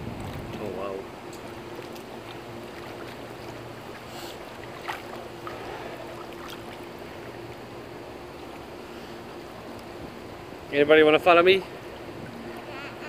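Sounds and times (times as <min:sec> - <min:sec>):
pool water sloshing: 0:00.0 - 0:13.0
steady low hum: 0:00.0 - 0:13.0
small water splashes: 0:00.1 - 0:09.9.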